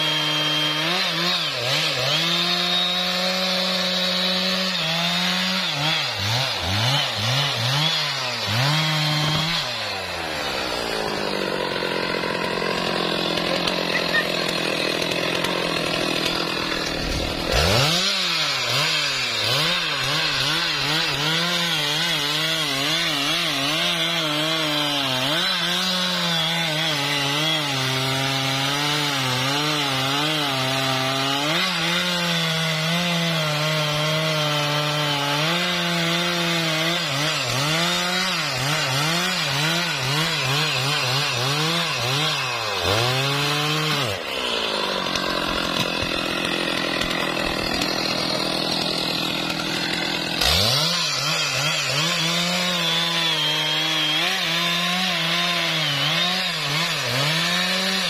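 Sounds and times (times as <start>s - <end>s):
chainsaw cutting log: 0.0s - 58.0s.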